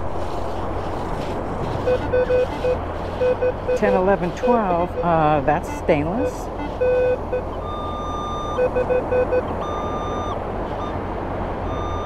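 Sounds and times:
metal detector beeps: 0:01.9 - 0:11.0, 0:11.7 - 0:12.0.

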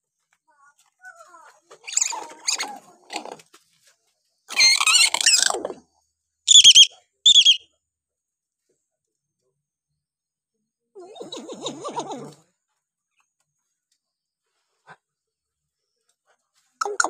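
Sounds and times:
myna bird calls and whistles: 0:06.5 - 0:07.6.

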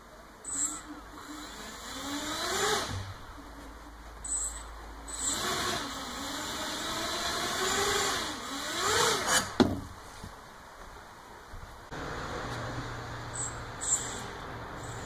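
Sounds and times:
drone motors whirring: 0:00.5 - 0:03.2.

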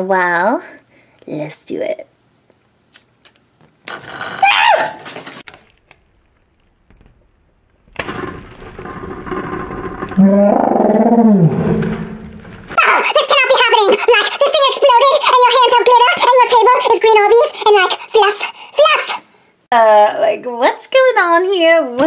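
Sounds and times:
stress ball bursting: 0:05.9 - 0:14.4.

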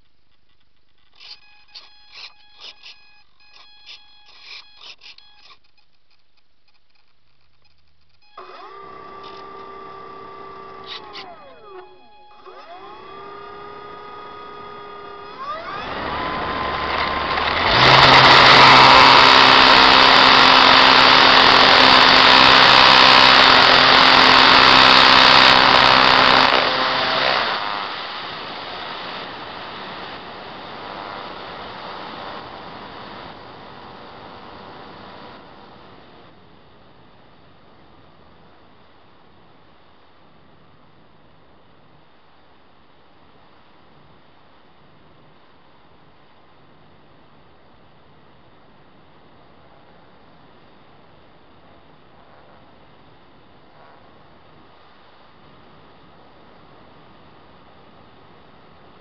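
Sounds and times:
electric motor and propeller whine: 0:01.2 - 0:05.6, 0:08.3 - 0:37.0.

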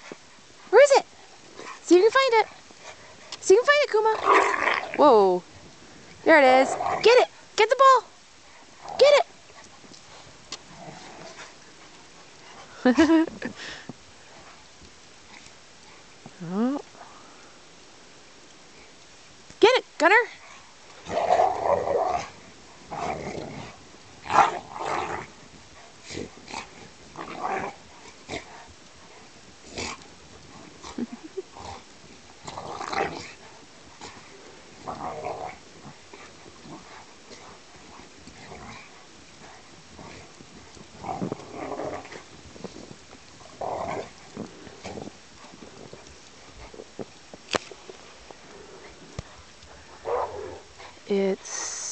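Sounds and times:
dogs growling: 0:02.4 - 0:05.3, 0:08.4 - 0:13.5, 0:20.4 - 0:51.0.

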